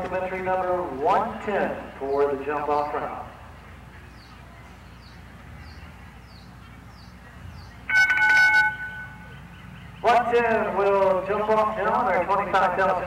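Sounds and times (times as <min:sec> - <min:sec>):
faint outdoor background: 0:00.0 - 0:13.0
bell ringing: 0:07.9 - 0:09.3.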